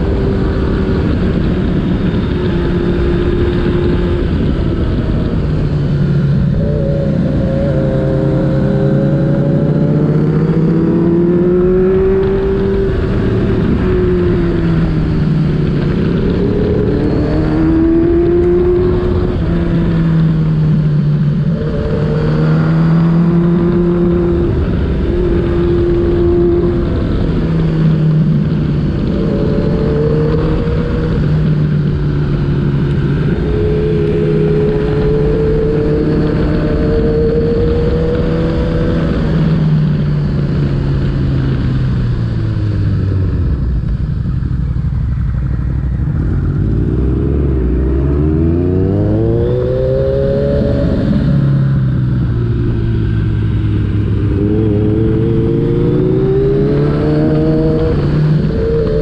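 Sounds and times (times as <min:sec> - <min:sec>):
motorcycle engine revving: 0:00.0 - 0:59.0
steady low rumble: 0:00.0 - 0:59.0.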